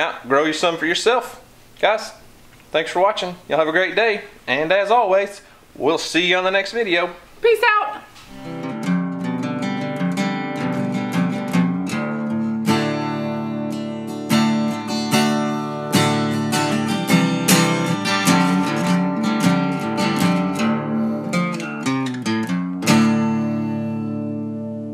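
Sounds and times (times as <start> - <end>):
acoustic guitar picking and strumming: 7.5 - 24.9.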